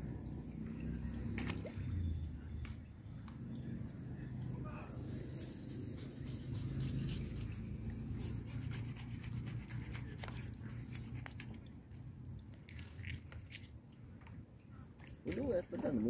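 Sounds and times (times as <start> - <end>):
steady low rumble: 0.0 - 12.6
knife scraping fish: 5.1 - 11.6.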